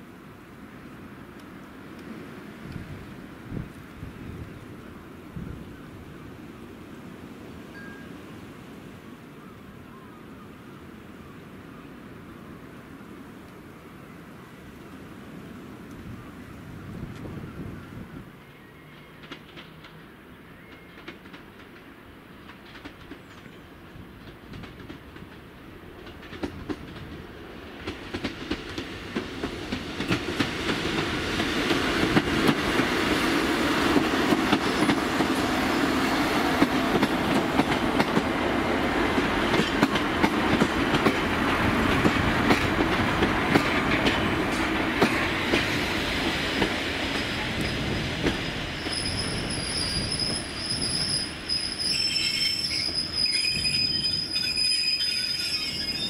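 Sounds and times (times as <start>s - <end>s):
train passing: 0.0s - 56.0s
high steady squeal: 48.4s - 56.0s.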